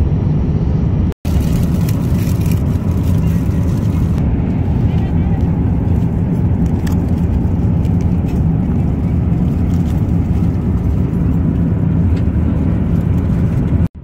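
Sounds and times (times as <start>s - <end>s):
aircraft cabin rumble and hiss: 0.2s - 14.0s
plastic wrap and foil crinkling: 1.3s - 4.2s, 6.0s - 12.0s.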